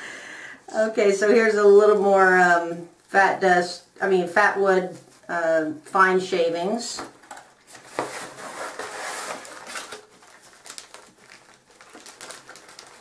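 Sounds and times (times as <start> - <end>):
wrapping paper crinkling: 7.6 - 13.0.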